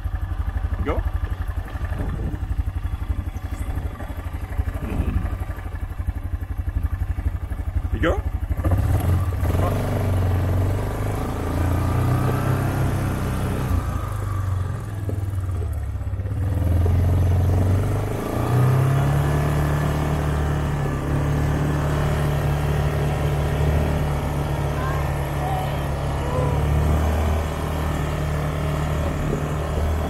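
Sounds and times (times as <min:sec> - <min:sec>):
quad bike engine running: 0:00.0 - 0:30.0.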